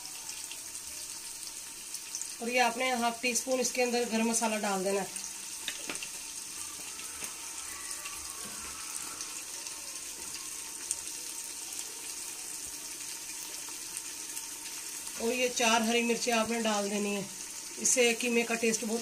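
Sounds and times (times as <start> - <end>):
meat sizzling in fat: 0.0 - 19.0.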